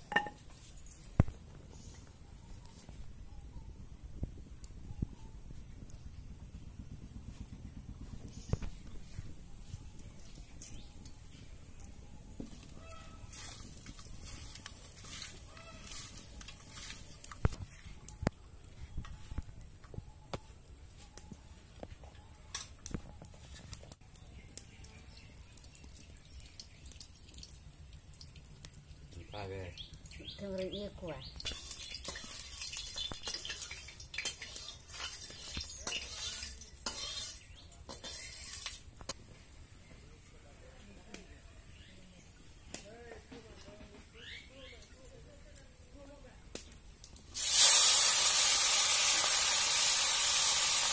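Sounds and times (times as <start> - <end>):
oil sizzling: 24.6 - 39.1, 47.2 - 50.9
metal ladle scraping iron pan: 31.5 - 38.9.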